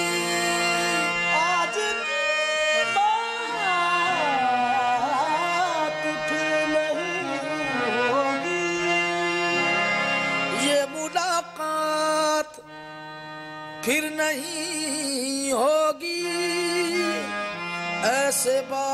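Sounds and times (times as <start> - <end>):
person singing wordlessly: 0.0 - 8.9, 10.5 - 12.6, 13.8 - 17.3
harmonium holding notes: 0.0 - 18.9.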